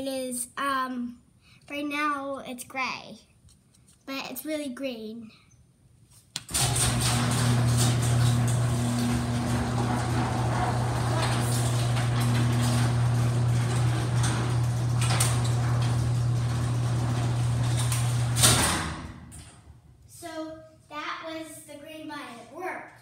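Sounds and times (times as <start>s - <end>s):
garage door opener humming: 6.4s - 19.8s.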